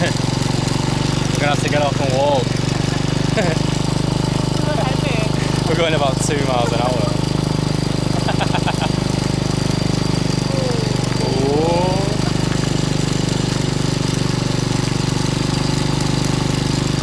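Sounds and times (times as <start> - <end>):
small engine labouring: 0.0 - 17.0.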